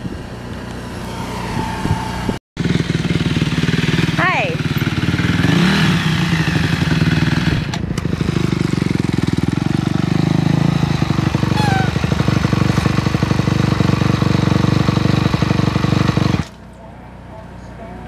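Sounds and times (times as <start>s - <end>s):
dirt bike engine idling: 2.6s - 16.8s.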